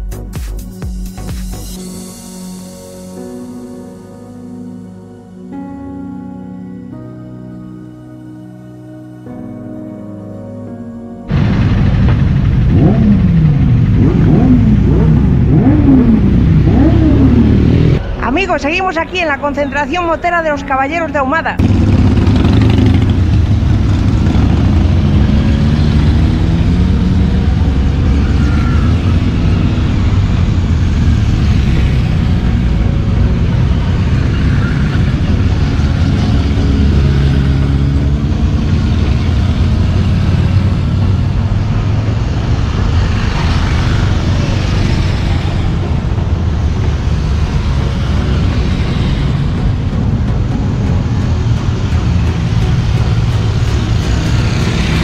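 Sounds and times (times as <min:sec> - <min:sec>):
motorcycles riding past: 0:11.3 - 0:18.0, 0:21.6 - 0:55.0.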